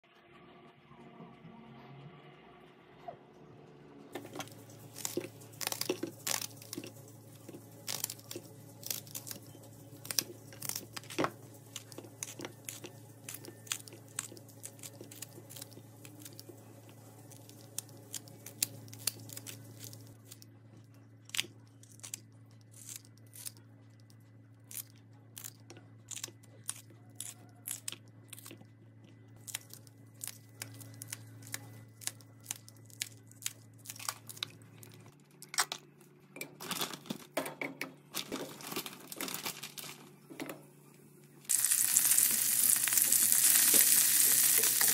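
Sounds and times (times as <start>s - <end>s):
low steady hum: 0.0s - 44.9s
scissors snipping vegetables: 4.2s - 16.6s, 21.3s - 23.6s, 24.7s - 28.6s.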